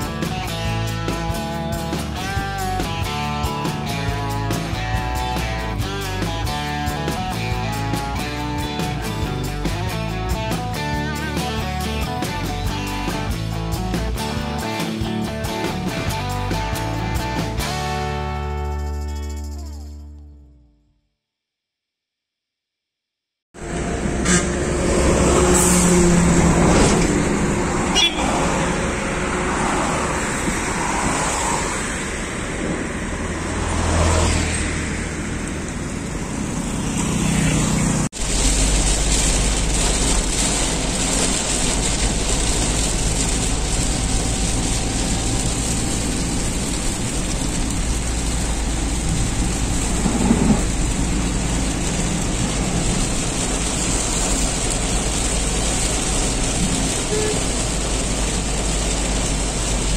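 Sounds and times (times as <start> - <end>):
road and tyre noise in rain: 0.0 - 18.8, 23.6 - 59.9
highway traffic passing: 23.6 - 59.9.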